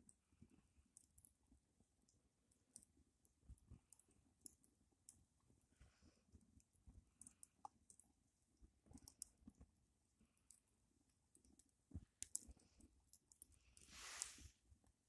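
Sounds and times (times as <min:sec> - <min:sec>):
wood fire crackling: 0:11.2 - 0:14.5
brief hiss: 0:13.9 - 0:14.5.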